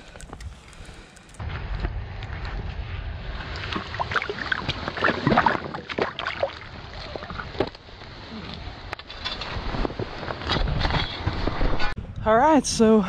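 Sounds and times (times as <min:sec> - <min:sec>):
water splashing in a hole: 0:03.4 - 0:07.7.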